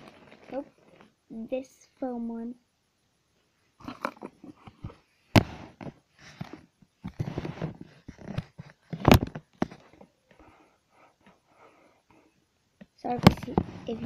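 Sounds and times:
device handling rustling and scraping: 0.0s - 1.2s, 4.5s - 10.5s, 13.1s - 14.0s.

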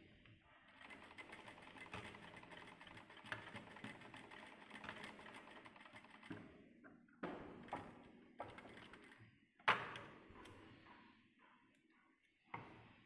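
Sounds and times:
sewing machine stitching: 0.7s - 6.4s.

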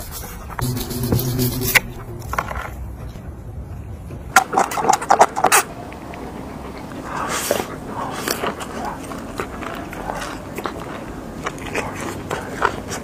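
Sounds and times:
crunchy wet biting noises: 8.0s - 13.0s.

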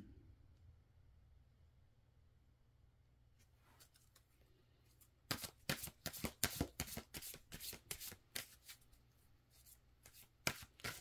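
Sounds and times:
cards being shuffled: 5.3s - 11.0s.

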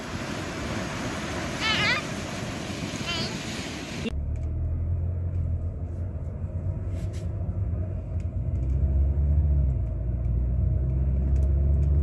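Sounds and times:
road noise inside car: 0.0s - 12.0s
car engine drone: 2.9s - 12.0s.

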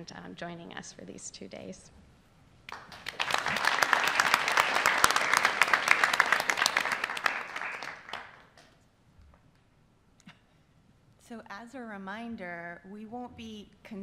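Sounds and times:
people applauding: 2.7s - 8.6s.

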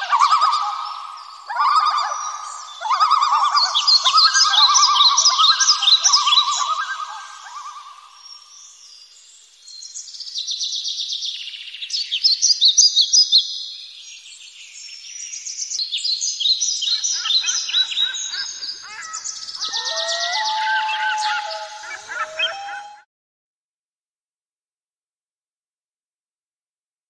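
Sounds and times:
birds chirping: 0.0s - 10.1s, 15.2s - 23.0s
lower whistled bird calls: 0.0s - 13.6s, 14.7s - 23.0s.

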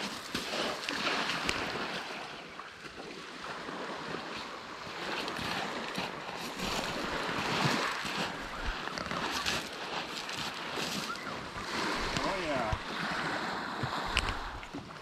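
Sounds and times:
waves washing onto gravel: 0.0s - 2.5s, 3.4s - 15.0s
wind buffeting microphone: 5.0s - 15.0s.

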